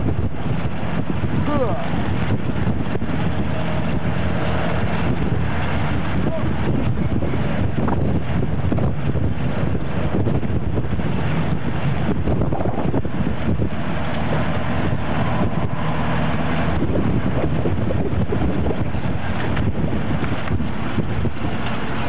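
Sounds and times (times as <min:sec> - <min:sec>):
diesel engine running: 0:00.0 - 0:22.0
wind rumbling on microphone: 0:00.0 - 0:22.0.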